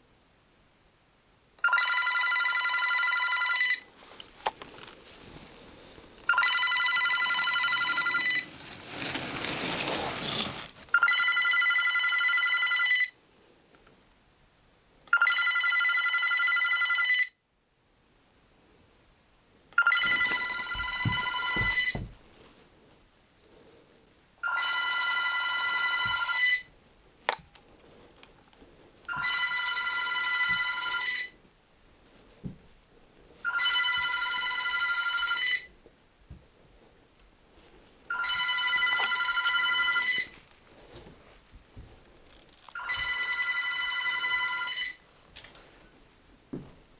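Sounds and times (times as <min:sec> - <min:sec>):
telephone ringing electronically: 0:01.6 - 0:03.9, 0:06.3 - 0:08.5, 0:10.9 - 0:13.2, 0:15.1 - 0:17.4, 0:19.8 - 0:22.1, 0:24.4 - 0:26.7, 0:29.1 - 0:31.4, 0:33.4 - 0:35.7, 0:38.1 - 0:40.4, 0:42.7 - 0:45.0.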